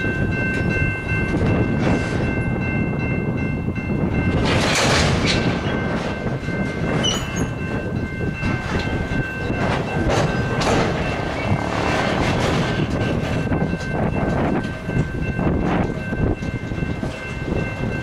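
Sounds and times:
freight train wheels rumbling: 0:00.0 - 0:18.0
wheels clacking: 0:04.1 - 0:18.0.

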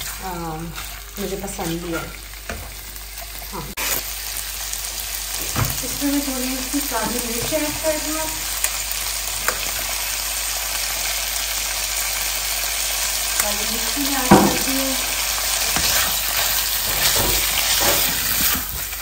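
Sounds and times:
spatula stirring and scraping: 0:00.0 - 0:02.8, 0:14.1 - 0:19.0
food sizzling in a pan: 0:00.0 - 0:19.0.

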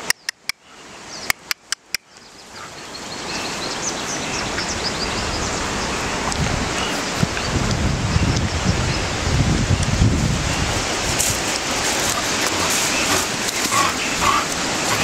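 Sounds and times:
sharp clicks: 0:00.0 - 0:00.6
small birds chirping: 0:00.0 - 0:09.2
wind hissing: 0:03.2 - 0:15.0
wind buffeting microphone: 0:04.1 - 0:15.0.

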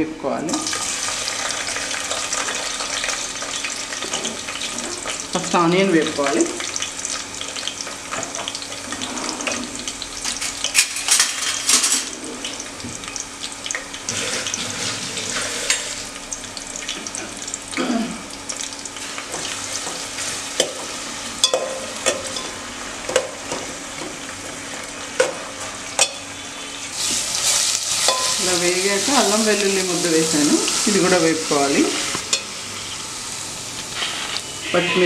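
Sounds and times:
onions sizzling in oil: 0:00.5 - 0:35.0
spoon clinking against pot: 0:21.4 - 0:22.5, 0:28.1 - 0:28.4.

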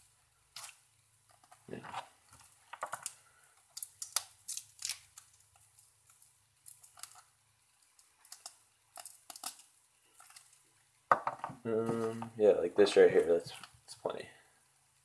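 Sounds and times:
garlic skin crackling and tearing: 0:00.5 - 0:00.8, 0:02.4 - 0:10.6.

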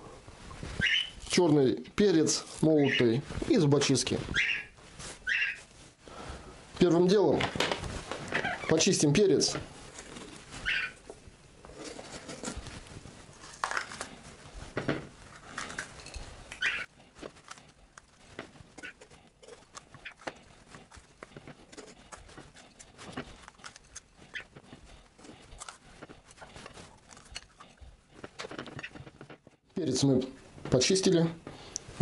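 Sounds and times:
knife crunching through pepper: 0:13.4 - 0:14.2.

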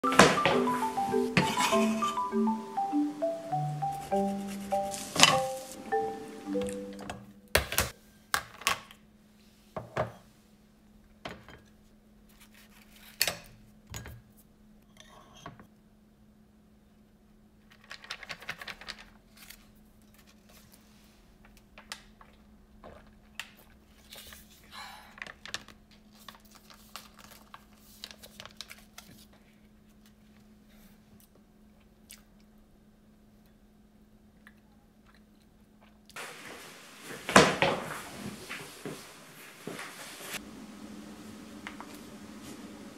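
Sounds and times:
faint steady hum: 0:18.9 - 0:42.9
plastic pouch crinkling: 0:25.1 - 0:29.3.

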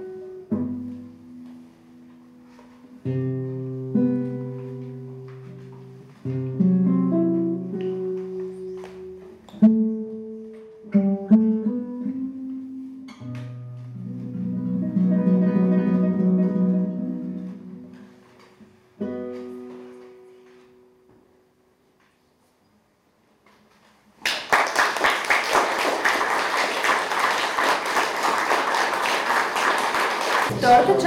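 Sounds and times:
classical guitar playing chords: 0:00.0 - 0:21.9.

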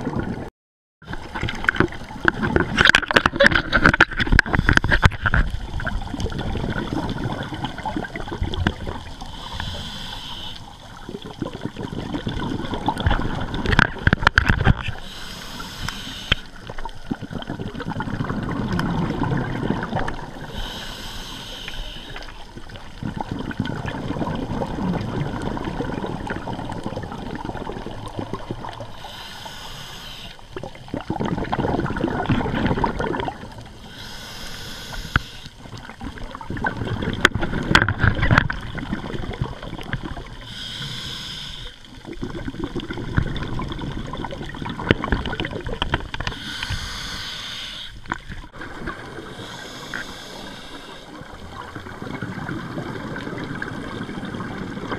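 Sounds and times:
exhaled bubbles gurgling: 0:00.0 - 0:54.9
regulator inhale hiss: 0:09.2 - 0:10.9, 0:15.0 - 0:16.8, 0:20.4 - 0:22.5, 0:28.9 - 0:30.6, 0:33.8 - 0:35.6, 0:40.4 - 0:41.9, 0:46.2 - 0:48.2, 0:49.2 - 0:51.4.

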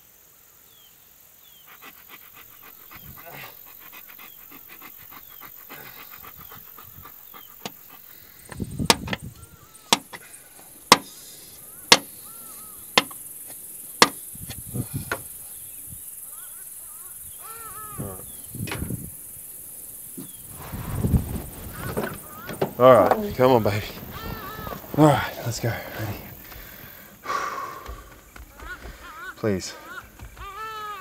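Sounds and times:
steady insect hiss: 0:00.0 - 0:31.0
handling thuds: 0:08.4 - 0:09.3, 0:09.9 - 0:11.2, 0:11.9 - 0:12.2, 0:20.2 - 0:27.2.

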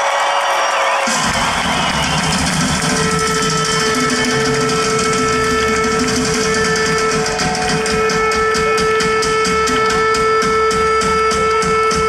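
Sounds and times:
crowd rumble: 0:00.8 - 0:08.8.

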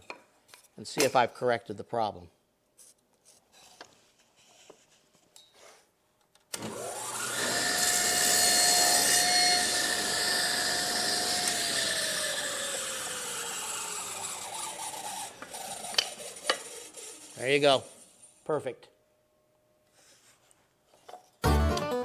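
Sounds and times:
faint handling sounds: 0:02.7 - 0:06.3
table saw cutting wood: 0:06.6 - 0:18.1.

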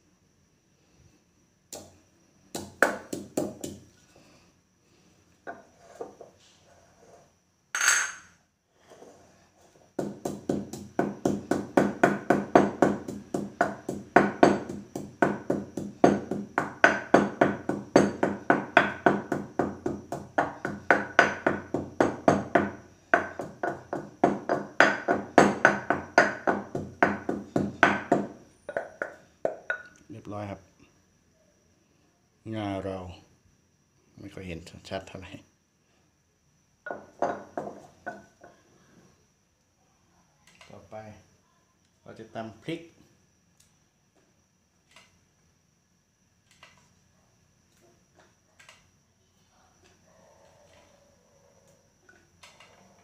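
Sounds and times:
pestle pounding in mortar: 0:02.5 - 0:03.8, 0:10.0 - 0:29.8.

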